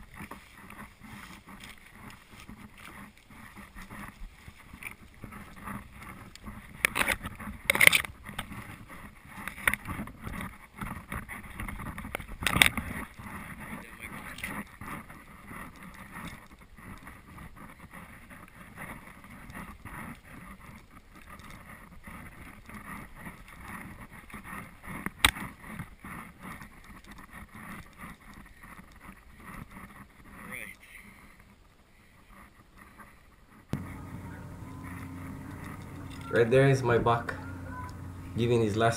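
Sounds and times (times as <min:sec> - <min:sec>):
footsteps through dry grass: 0:00.0 - 0:05.6, 0:33.8 - 0:38.7.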